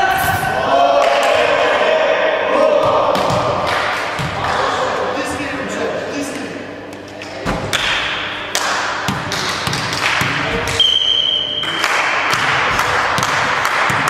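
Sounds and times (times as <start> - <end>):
volleyballs smacking and bouncing: 2.7 - 4.8, 7.5 - 11.0, 11.6 - 14.0.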